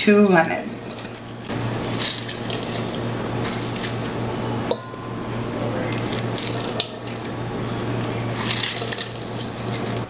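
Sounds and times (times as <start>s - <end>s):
juice splashing into metal pot: 1.8s - 4.3s, 5.9s - 10.0s.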